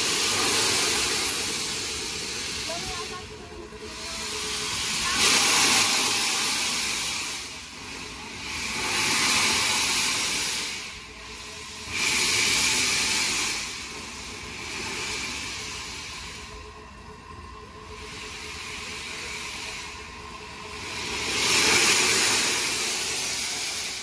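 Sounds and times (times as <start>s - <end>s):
low steady rumble: 0.0s - 24.0s
steam locomotive hissing: 0.0s - 24.0s.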